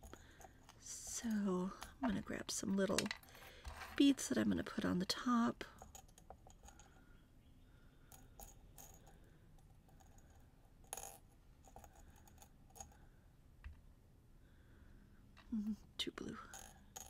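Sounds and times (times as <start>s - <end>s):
small beads clinking in a dish: 5.6s - 7.0s, 8.0s - 13.1s, 16.3s - 17.0s.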